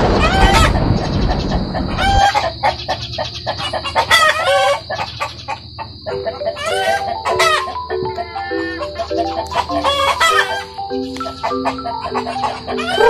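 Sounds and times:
loud drawn-out chicken call: 0.0s - 2.8s, 3.5s - 5.4s, 6.3s - 10.7s, 11.3s - 13.0s
chickens clucking and calling: 0.1s - 13.0s.

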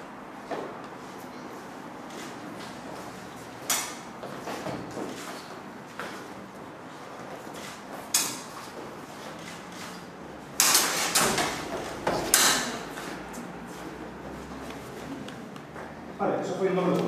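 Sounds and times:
metal swords clashing: 12.1s - 12.8s.

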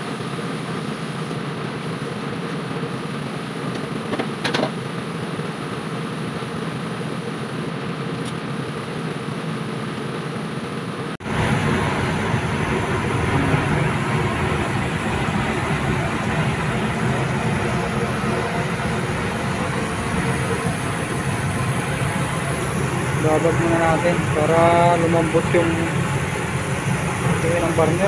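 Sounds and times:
kitchen ventilation rushing: 11.2s - 28.0s.

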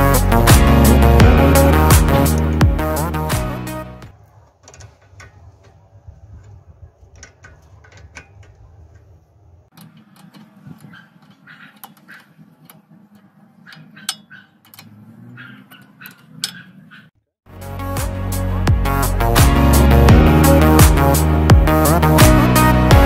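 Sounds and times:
spanner clicking on bolt: 9.7s - 15.0s.

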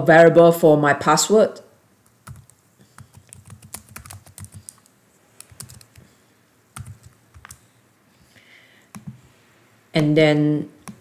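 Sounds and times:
computer keyboard typing: 2.0s - 6.1s, 6.8s - 7.6s, 8.9s - 9.2s, 10.8s - 11.0s.

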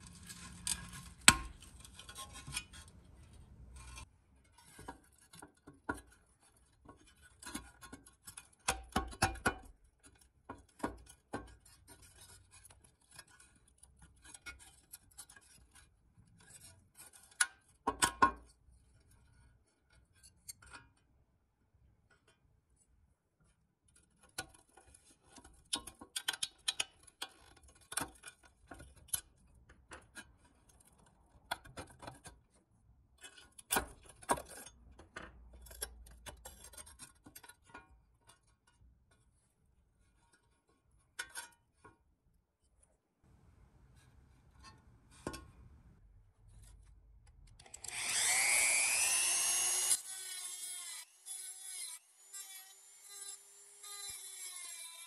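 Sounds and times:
small power tool whining: 47.6s - 55.0s.

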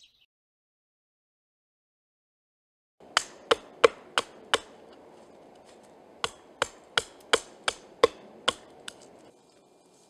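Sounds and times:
hatchet chopping wood: 3.0s - 9.3s.

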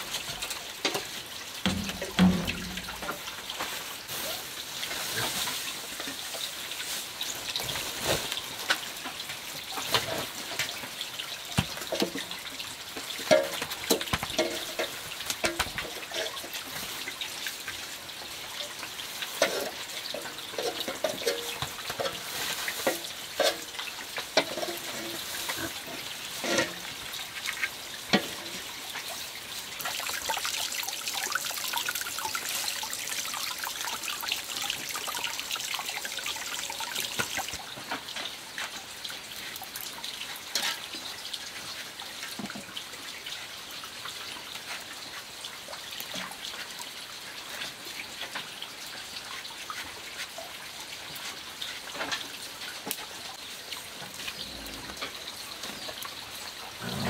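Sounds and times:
dry straw rustling and crackling: 0.0s - 11.0s, 18.6s - 27.7s, 28.5s - 37.6s.

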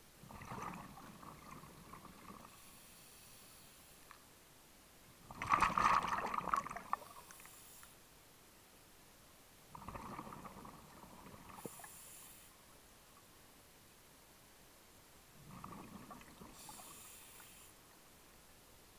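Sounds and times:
underwater bubbling gurgles: 0.2s - 2.6s, 5.2s - 7.4s, 9.7s - 12.1s, 15.4s - 17.2s.

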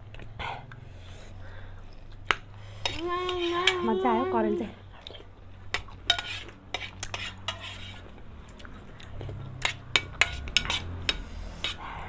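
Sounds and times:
metal spoon scraping metal bowl: 2.8s - 4.0s, 5.7s - 8.1s, 9.6s - 11.9s.

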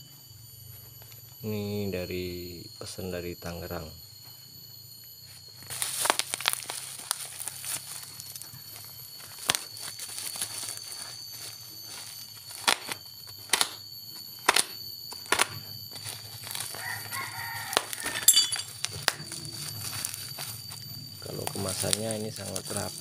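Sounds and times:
plastic wrapping tearing: 5.7s - 8.4s, 9.2s - 13.7s, 14.4s - 18.1s
rooster crowing: 16.6s - 18.7s.

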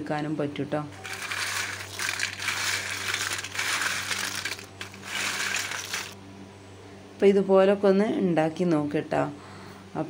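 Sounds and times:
fried snack pieces rustling in bowl: 1.0s - 6.2s.

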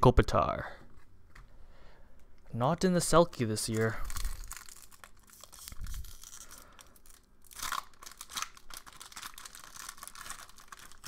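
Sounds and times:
foil wrapper crinkling and tearing: 3.3s - 11.0s.

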